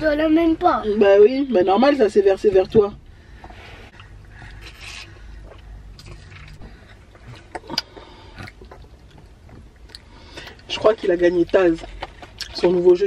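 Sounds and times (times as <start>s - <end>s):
chewing: 3.9s - 12.9s
sipping through a straw: 4.6s - 5.2s.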